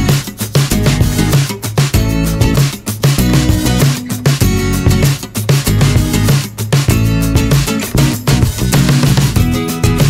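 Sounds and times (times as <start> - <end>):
bass: 0.0 - 10.0
drums: 0.0 - 10.0
guitar: 0.0 - 10.0.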